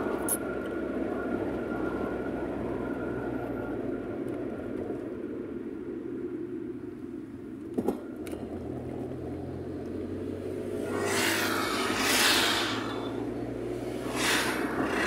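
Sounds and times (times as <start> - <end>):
car cabin road rumble: 3.8 - 15.0
vehicle passing whoosh: 10.5 - 15.0.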